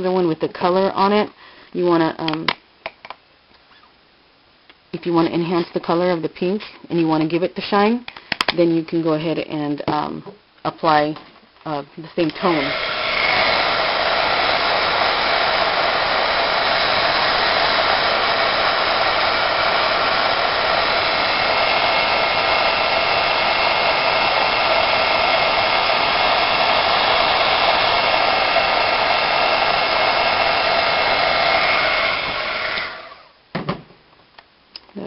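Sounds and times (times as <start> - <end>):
heat tool blowing hot air: 12.2 - 33.4.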